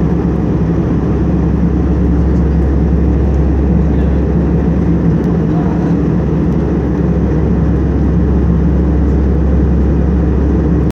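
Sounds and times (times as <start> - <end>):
airliner cabin engine rumble: 0.0 - 10.9.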